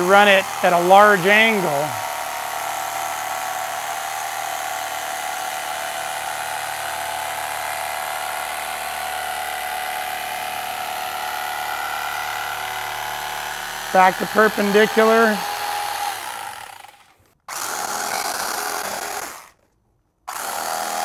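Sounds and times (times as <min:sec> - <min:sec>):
electric carving knife whine: 0:00.0 - 0:19.5, 0:20.3 - 0:21.0.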